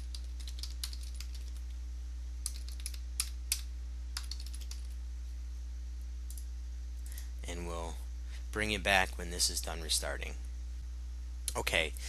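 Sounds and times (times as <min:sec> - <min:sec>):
keyboard typing: 0:00.0 - 0:01.7, 0:02.4 - 0:05.0
steady low hum: 0:00.0 - 0:12.0.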